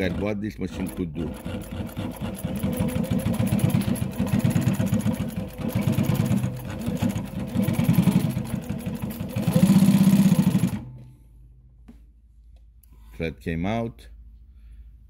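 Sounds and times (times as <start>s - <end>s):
sewing machine stitching: 0.0s - 10.9s.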